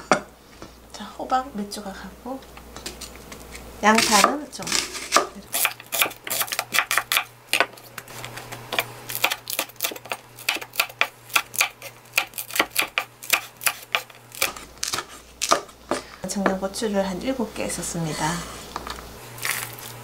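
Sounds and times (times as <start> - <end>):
knife chopping on wooden board: 4.0 - 7.8, 9.2 - 16.0.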